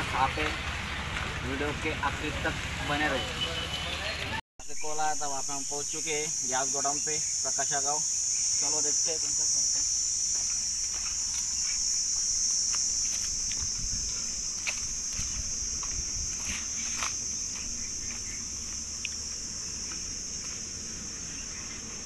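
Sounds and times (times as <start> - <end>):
insects shrilling: 4.6 - 22.0
footsteps on dry leaves: 9.6 - 21.6.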